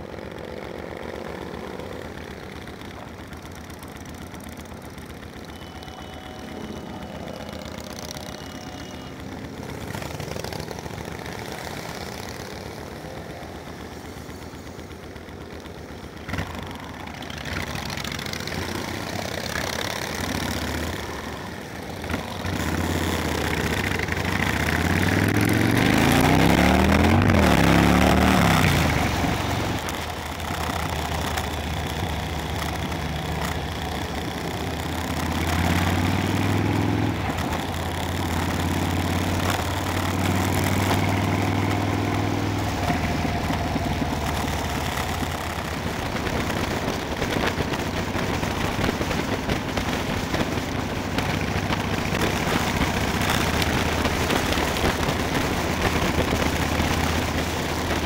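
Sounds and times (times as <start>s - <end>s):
motorcycle engines running: 0.0s - 58.0s.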